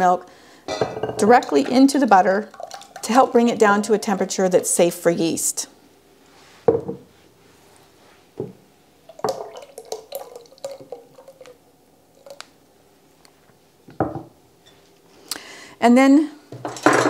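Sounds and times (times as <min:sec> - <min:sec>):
liquid glugging and dripping: 0:01.4 - 0:03.4, 0:09.1 - 0:12.6.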